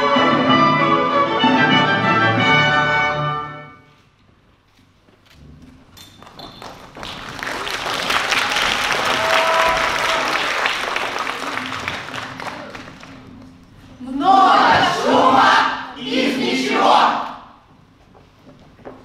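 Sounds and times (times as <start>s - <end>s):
audience applauding: 6.3s - 13.7s.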